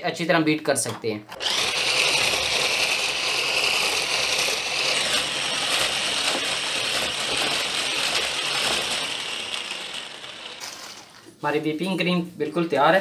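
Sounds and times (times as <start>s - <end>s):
hand blender whisk whipping cream: 1.3s - 11.2s.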